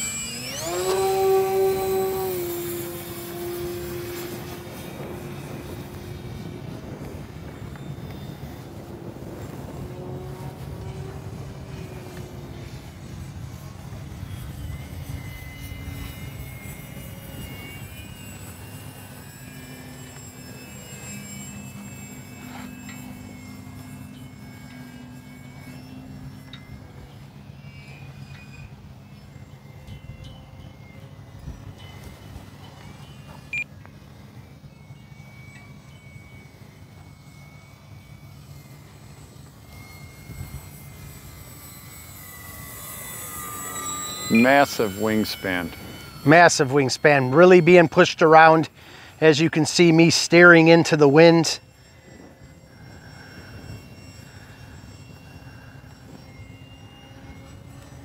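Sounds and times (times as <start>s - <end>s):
electric motor and propeller whine: 0.0s - 58.0s
wind buffeting microphone: 0.5s - 20.6s.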